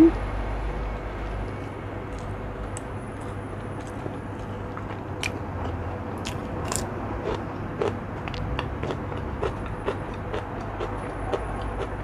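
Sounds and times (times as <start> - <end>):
steady background hum: 0.0 - 12.0
mouth chewing: 5.2 - 12.0.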